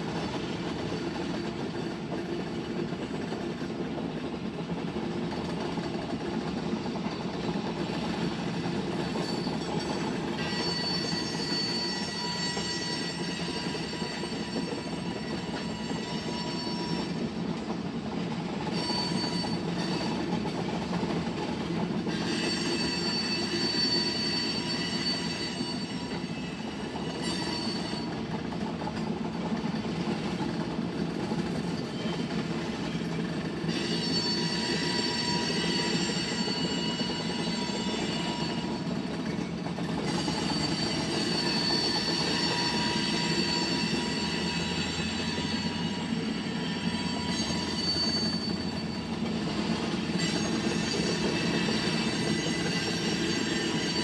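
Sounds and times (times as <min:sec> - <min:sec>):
train wheels rumbling on rails: 0:00.0 - 0:54.0
metallic wheel squeal: 0:07.9 - 0:17.4, 0:18.6 - 0:20.6, 0:22.0 - 0:28.4, 0:31.4 - 0:54.0.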